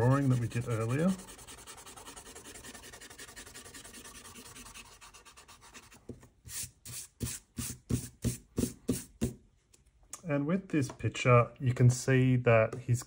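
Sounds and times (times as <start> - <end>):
eraser rubbing on paper: 0.0 - 9.1.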